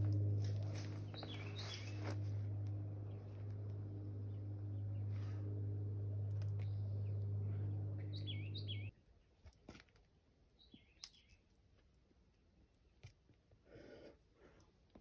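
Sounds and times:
small birds chirping: 0.0s - 8.9s
steady low hum: 0.0s - 8.9s.

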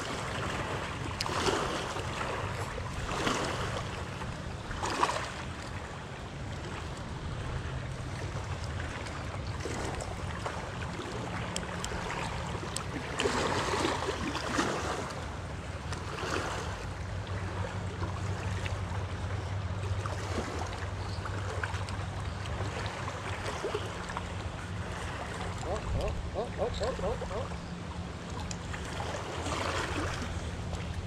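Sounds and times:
small waves lapping: 0.0s - 31.0s
wind rumbling on microphone: 25.4s - 27.8s.

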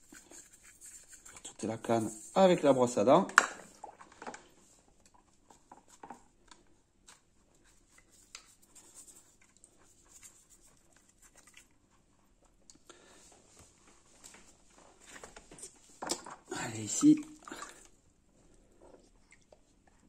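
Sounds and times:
toothbrush scrubbing plastic tube: 0.0s - 2.9s, 7.0s - 12.4s.

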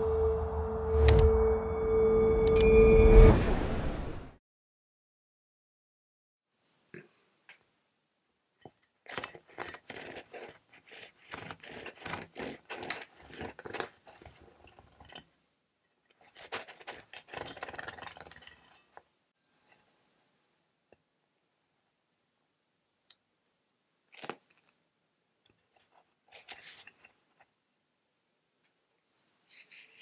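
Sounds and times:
bread knife sawing through bread: 9.2s - 14.7s.

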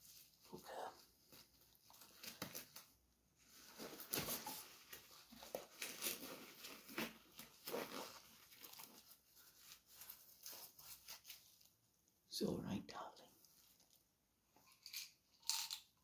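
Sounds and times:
rubber gloves rustling and snapping: 1.0s - 11.8s.

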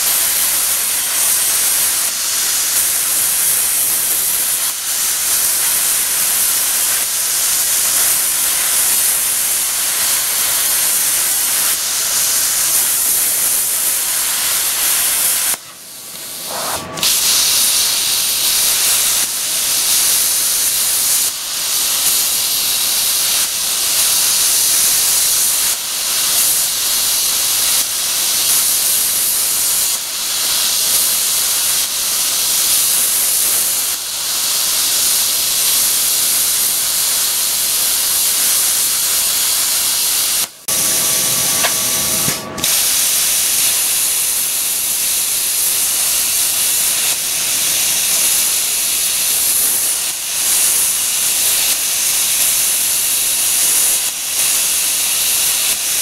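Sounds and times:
plasma cutter arc hissing: 0.0s - 56.0s.

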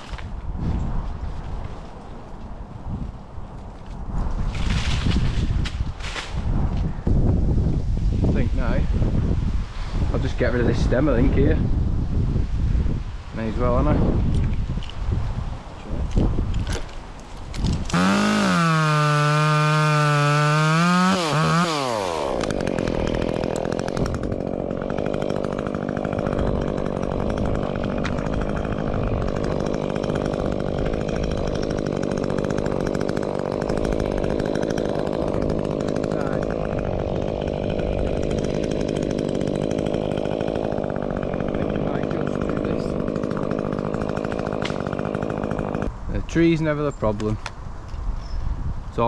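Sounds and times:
chainsaw cutting wood: 4.4s - 6.9s, 15.9s - 46.0s.

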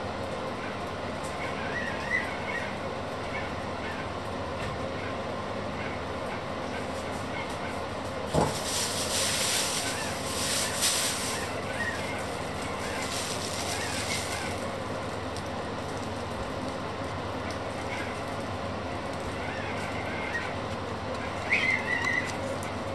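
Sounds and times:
plastic bag crinkling: 8.3s - 16.8s.

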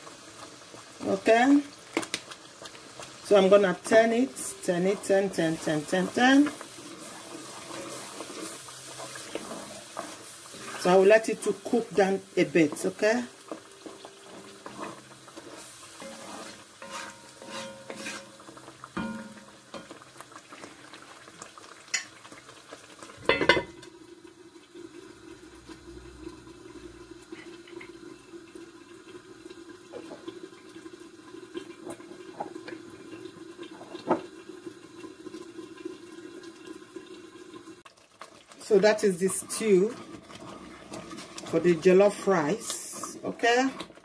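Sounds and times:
stew simmering and bubbling: 0.0s - 44.0s
wooden spoon stirring stew: 2.2s - 23.0s, 39.4s - 44.0s.

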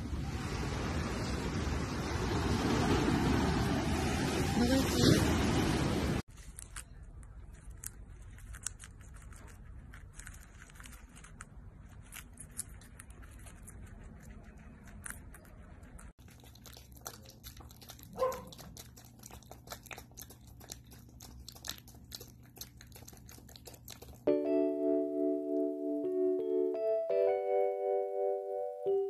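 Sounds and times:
animal chewing with wet smacking: 6.3s - 24.3s
guinea pigs munching lettuce: 6.3s - 24.3s
low steady hum: 6.3s - 29.0s.

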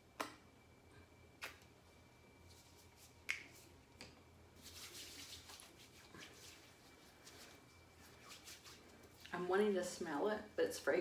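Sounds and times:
hands rubbing lotion: 4.6s - 9.3s.

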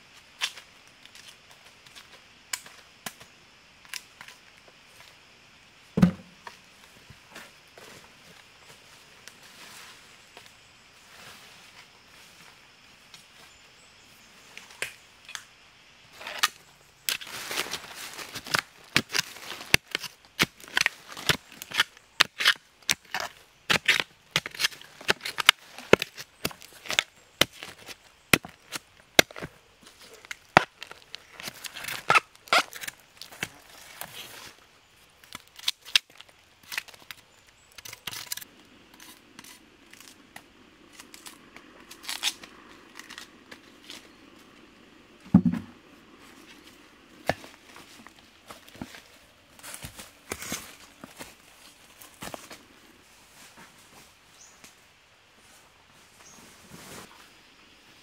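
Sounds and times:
machete chopping into soil: 6.0s - 6.5s.

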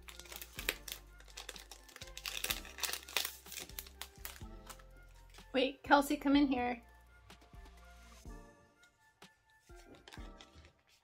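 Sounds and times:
paper envelope rustling: 0.0s - 5.4s
quiet background music: 0.0s - 11.0s.

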